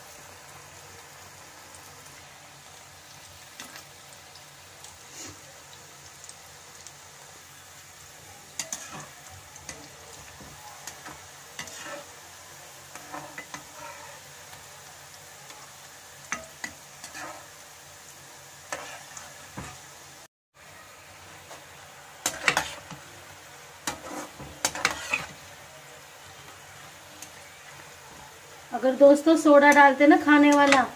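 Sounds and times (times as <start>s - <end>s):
food sizzling in hot oil: 0.0s - 30.9s
metal spatula scraping pan: 8.6s - 10.3s, 10.9s - 12.2s, 12.9s - 14.4s, 16.3s - 17.5s, 18.7s - 19.8s, 22.2s - 23.0s, 23.8s - 25.4s.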